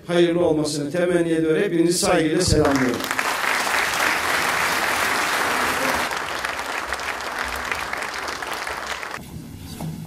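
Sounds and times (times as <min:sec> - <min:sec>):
audience applauding: 0:02.6 - 0:09.2.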